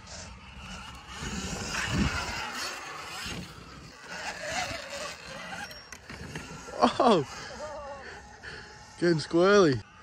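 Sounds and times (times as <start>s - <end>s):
electric motor whine: 0.0s - 10.0s
tyres on dirt: 0.0s - 10.0s
wind noise: 0.6s - 5.6s.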